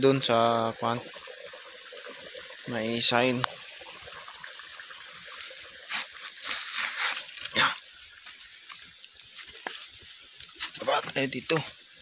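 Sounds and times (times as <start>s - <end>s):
running water hiss: 0.0s - 12.0s
footsteps through undergrowth: 4.8s - 7.4s.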